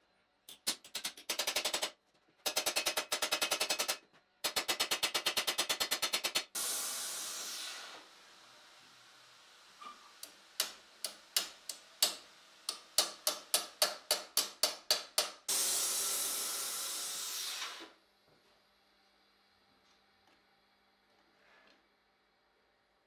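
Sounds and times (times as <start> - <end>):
loud steady hiss: 6.6 - 13.2, 15.5 - 17.9.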